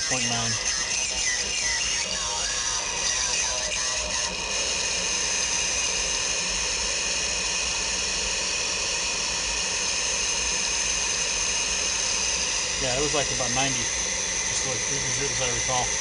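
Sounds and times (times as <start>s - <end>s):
radio noise hiss: 0.0s - 1.2s, 12.7s - 16.0s.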